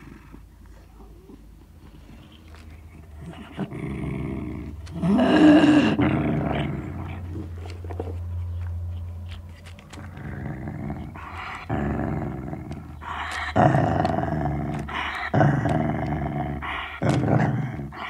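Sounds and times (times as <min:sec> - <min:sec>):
dog growling: 0:00.0 - 0:08.3, 0:09.7 - 0:18.0
small clicks: 0:07.6 - 0:10.4.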